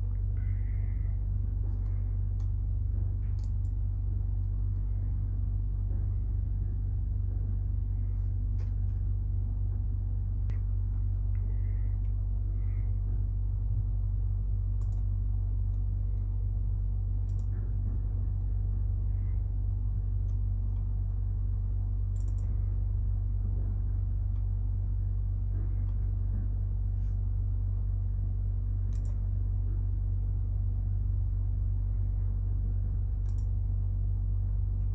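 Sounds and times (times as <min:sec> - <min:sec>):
low rumble and hum: 0:00.0 - 0:34.9
faint short clicks: 0:22.1 - 0:22.5, 0:28.9 - 0:29.2, 0:33.2 - 0:33.6.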